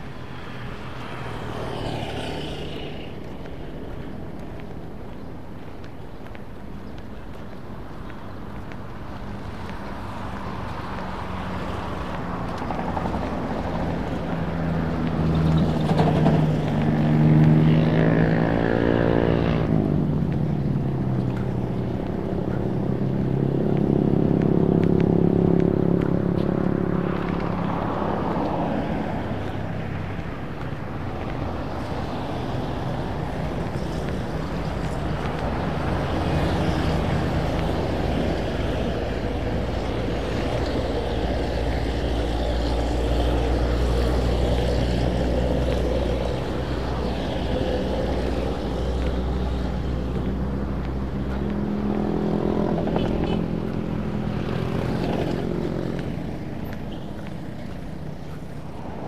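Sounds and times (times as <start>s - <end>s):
motor vehicles passing: 0.0s - 59.0s.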